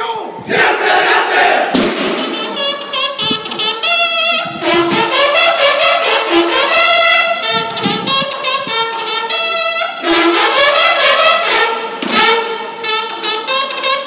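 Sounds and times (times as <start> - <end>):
bugles playing fanfare: 0.5 - 14.0
rapid snare drum strokes: 1.7 - 2.6.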